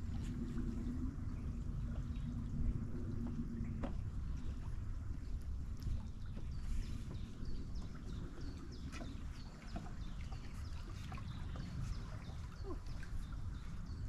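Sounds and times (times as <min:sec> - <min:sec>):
flowing river water: 0:00.0 - 0:14.0
small birds chirping: 0:06.1 - 0:14.0.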